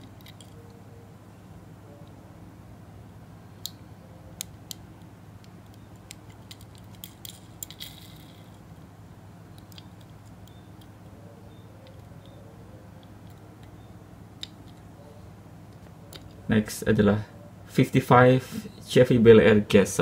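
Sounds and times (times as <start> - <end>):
low steady hum: 0.0 - 20.0
fingers clicking toy car: 4.4 - 8.6.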